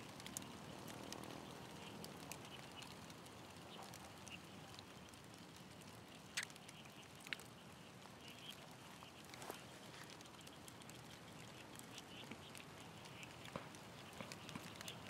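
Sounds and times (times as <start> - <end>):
faint outdoor ambience: 0.0 - 15.0
sharp clicks: 6.3 - 7.5.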